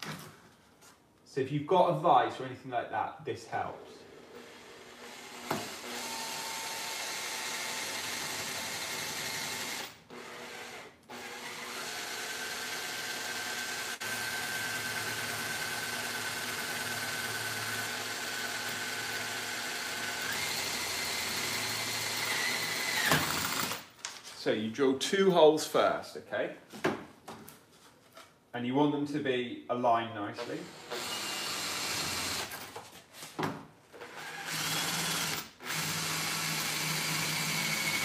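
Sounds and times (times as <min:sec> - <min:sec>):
cordless drill boring into bamboo: 0:04.4 - 0:23.8, 0:30.6 - 0:32.6, 0:34.0 - 0:38.0.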